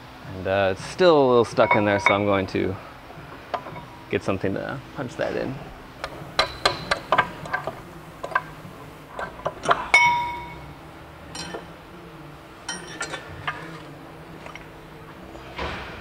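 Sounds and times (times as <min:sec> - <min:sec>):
hammer striking metal punch: 0:01.6 - 0:02.6, 0:06.0 - 0:08.6, 0:09.2 - 0:10.7.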